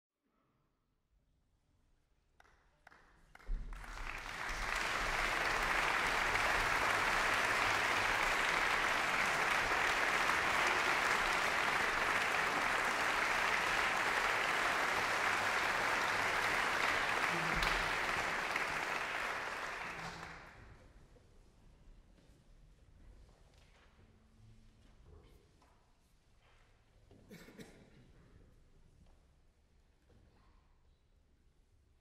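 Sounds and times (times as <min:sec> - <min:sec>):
audience applauding: 0:02.9 - 0:20.6.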